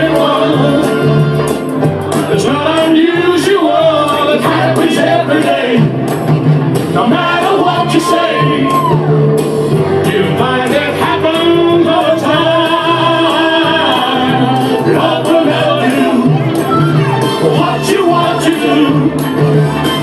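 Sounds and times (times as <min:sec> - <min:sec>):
man and woman singing: 0:00.0 - 0:01.1, 0:02.3 - 0:05.9, 0:07.0 - 0:09.0, 0:10.0 - 0:19.3
backing track with beat: 0:00.0 - 0:20.0.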